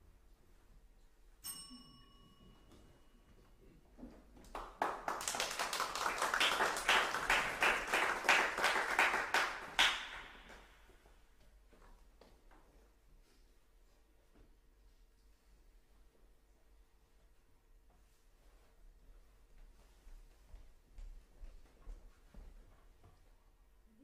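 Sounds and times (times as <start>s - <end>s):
bell-like ping: 1.4s - 3.3s
audience applauding: 4.5s - 10.7s.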